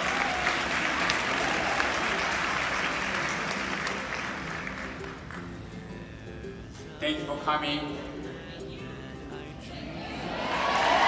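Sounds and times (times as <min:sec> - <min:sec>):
audience applauding: 0:00.0 - 0:05.6, 0:10.3 - 0:11.0.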